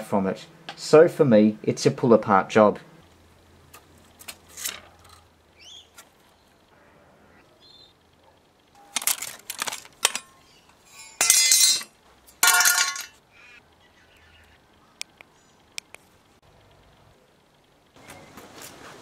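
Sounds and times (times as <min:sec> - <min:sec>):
metal parts clinking and scraping: 0:04.2 - 0:05.3, 0:08.8 - 0:13.2.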